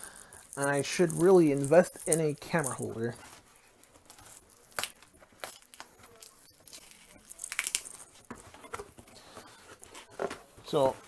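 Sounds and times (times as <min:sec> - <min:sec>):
packing tape and packaging tearing: 0:03.9 - 0:10.2.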